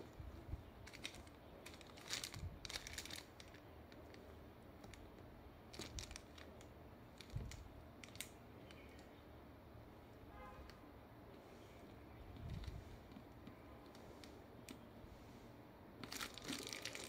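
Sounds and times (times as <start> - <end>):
plastic film crinkling: 0.8 - 4.2, 4.8 - 9.0, 16.0 - 17.0.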